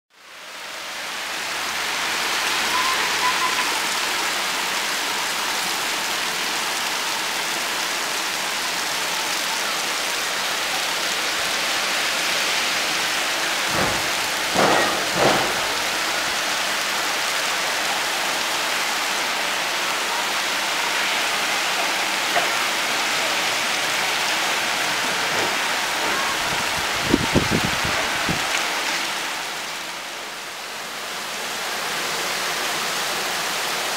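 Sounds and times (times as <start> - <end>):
heavy rain on roofs and street: 0.1 - 33.9
short loud knocks: 13.7 - 15.9.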